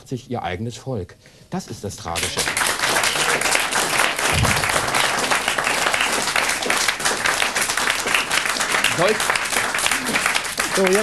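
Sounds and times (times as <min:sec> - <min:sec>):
audience applauding: 0:02.2 - 0:11.0
low thump: 0:04.3 - 0:04.7.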